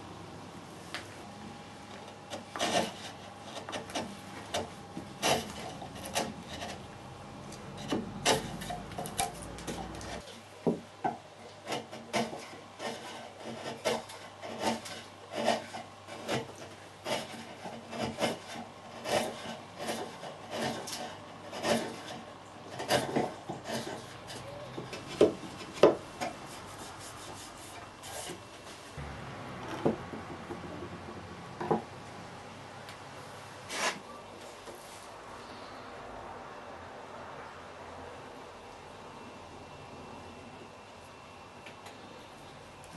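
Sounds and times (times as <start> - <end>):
chisel scraping wood: 2.3 - 10.4, 11.6 - 28.4, 33.7 - 34.0.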